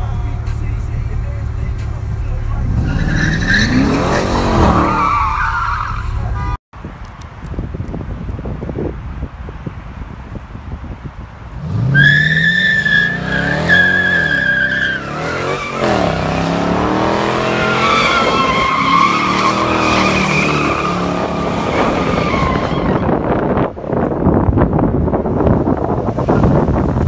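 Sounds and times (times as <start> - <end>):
car engine revving hard: 11.6 - 22.7
tyres squealing: 11.9 - 16.2, 17.3 - 23.1.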